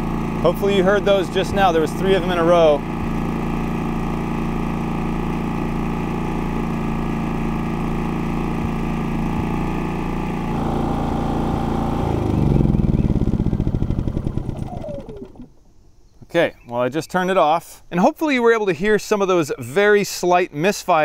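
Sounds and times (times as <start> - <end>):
generator engine running: 0.0 - 15.9.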